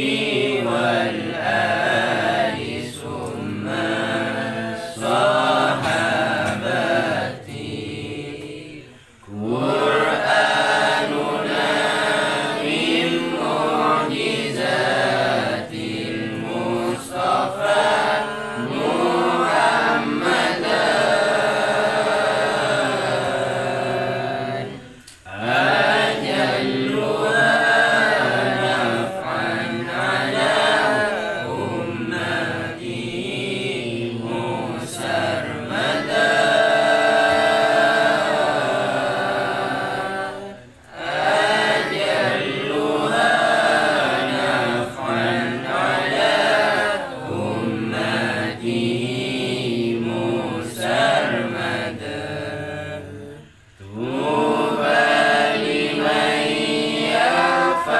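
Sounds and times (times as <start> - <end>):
man chanting: 56.2 - 57.9.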